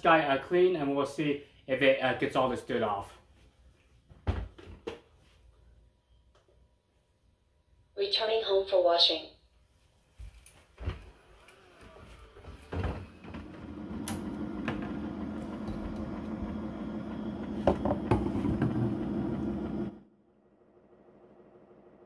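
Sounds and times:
mechanical whir: 11.2s - 22.0s.

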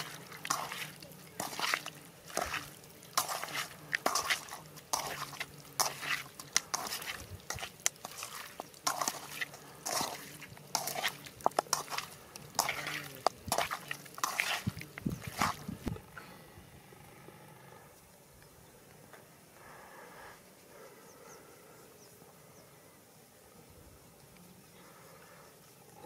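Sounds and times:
hand squishing raw chicken: 0.0s - 16.0s.

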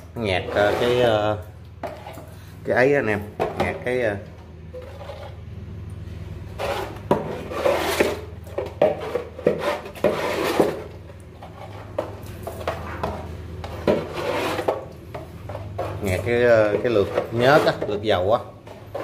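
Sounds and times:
steady low hum: 0.0s - 19.0s
scraping and rubbing strokes: 0.4s - 2.3s, 6.5s - 14.9s, 15.5s - 18.0s.

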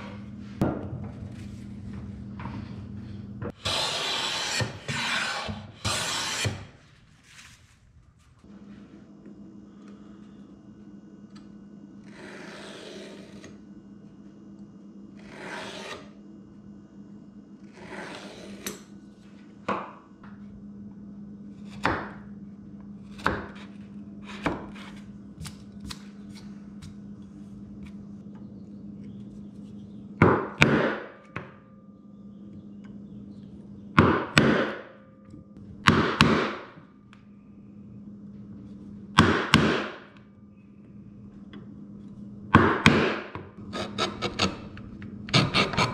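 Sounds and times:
steady low hum: 0.0s - 45.9s
pencil scratching on wood: 45.3s - 45.9s.

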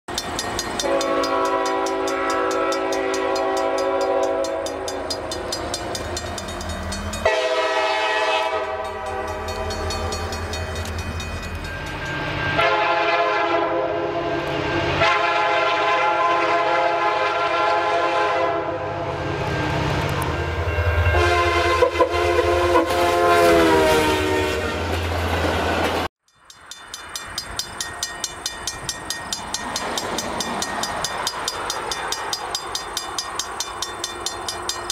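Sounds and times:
locomotive air horn blasts: 0.8s - 4.9s, 7.2s - 9.6s, 12.6s - 19.0s, 20.9s - 24.9s.

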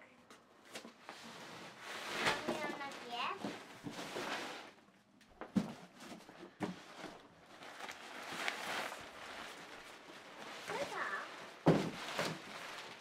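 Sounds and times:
nylon fabric rustling: 1.2s - 4.8s, 6.9s - 13.0s
knocks on cardboard box: 11.6s - 12.0s.

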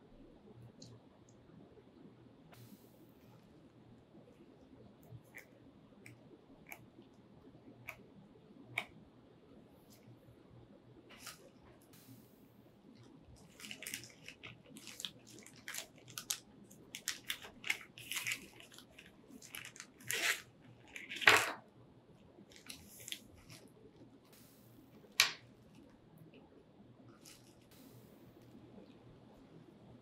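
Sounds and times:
plastic bag crinkling: 13.4s - 21.6s, 22.5s - 23.6s.

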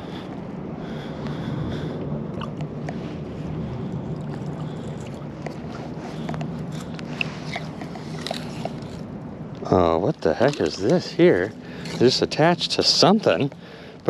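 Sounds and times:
water sloshing around legs: 3.7s - 9.1s.

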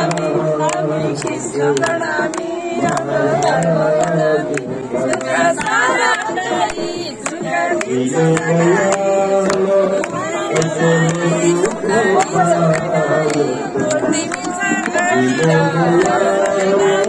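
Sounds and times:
devotional song with music: 0.0s - 17.0s
people clapping in time: 0.0s - 17.0s.

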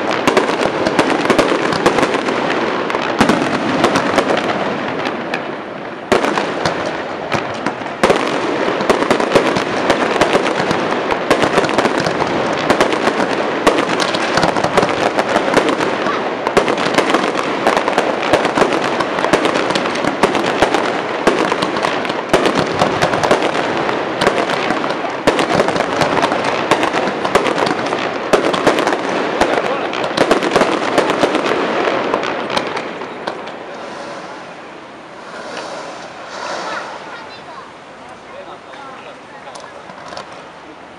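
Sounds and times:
fireworks bangs and crackling: 0.0s - 40.9s.

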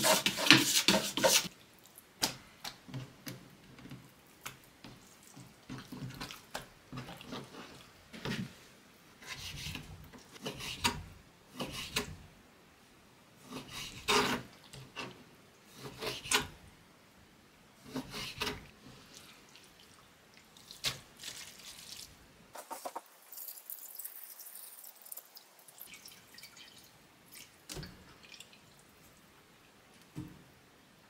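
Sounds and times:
wet dripping and patter: 1.5s - 8.4s, 19.0s - 29.3s.

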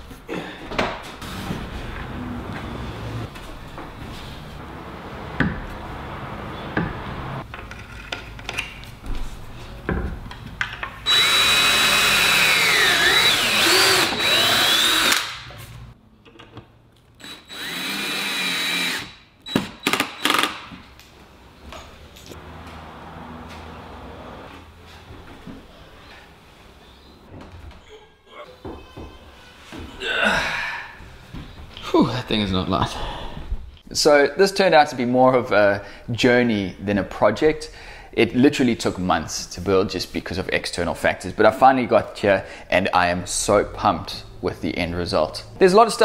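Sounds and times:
cordless drill driving screws: 11.0s - 15.4s, 17.2s - 20.6s.

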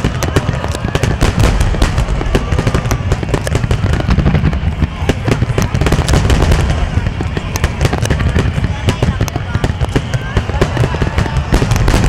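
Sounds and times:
fireworks bangs and crackles: 0.0s - 12.0s
deep rumble: 1.1s - 9.3s.

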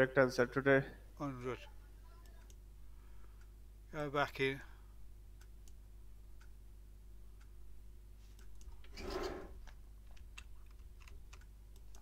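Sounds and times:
mouse and keyboard clicks: 9.7s - 12.0s.

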